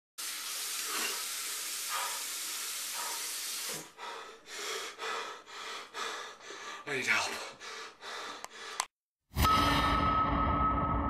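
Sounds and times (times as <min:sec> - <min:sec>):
running water hissing: 0:00.2 - 0:04.0.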